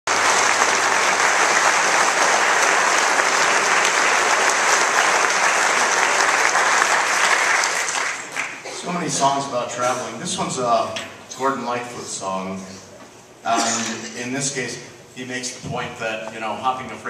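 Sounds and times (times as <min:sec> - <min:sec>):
audience applauding: 0:00.1 - 0:08.7.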